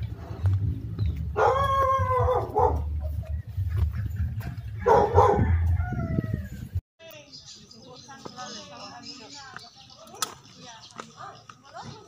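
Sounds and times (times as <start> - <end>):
low rumble: 0.0 - 6.8.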